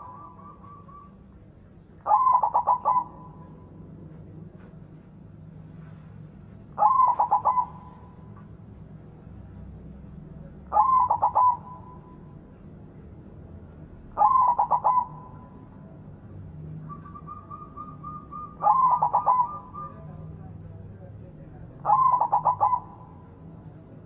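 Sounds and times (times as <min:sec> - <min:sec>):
dove cooing: 0:00.0 - 0:01.4, 0:02.0 - 0:04.8, 0:06.7 - 0:08.4, 0:10.6 - 0:12.6, 0:14.0 - 0:16.0, 0:16.8 - 0:20.7, 0:21.7 - 0:23.6.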